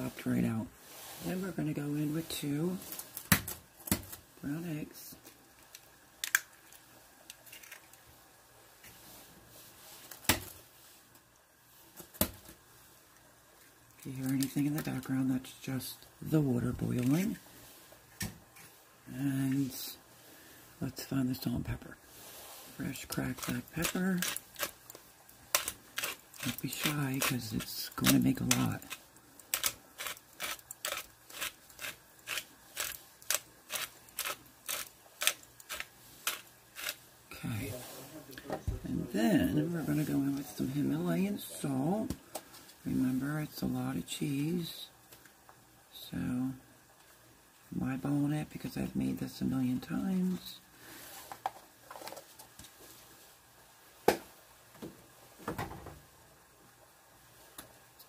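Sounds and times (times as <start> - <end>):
egg shell cracking: 5.7 - 8.0, 23.4 - 37.0
pepper mill grinding: 23.0 - 37.0.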